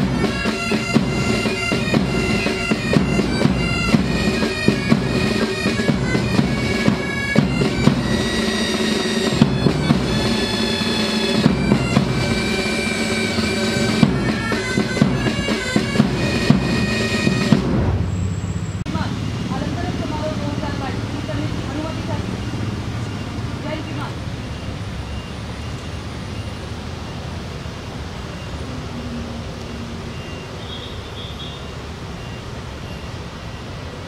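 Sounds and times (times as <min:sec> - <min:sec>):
bagpipes playing a tune: 0:00.0 - 0:17.7
drum beats: 0:00.0 - 0:18.1.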